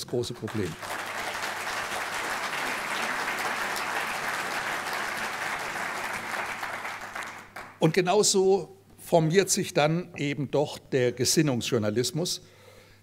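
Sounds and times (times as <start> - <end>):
audience applauding: 0.4 - 7.8.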